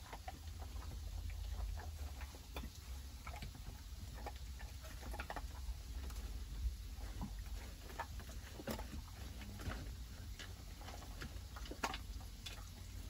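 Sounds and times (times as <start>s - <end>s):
dog crunching dry kibble: 0.0s - 13.0s.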